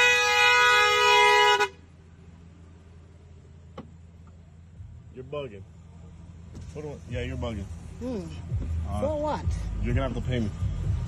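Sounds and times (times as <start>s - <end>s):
car horn blast: 0.0s - 1.9s.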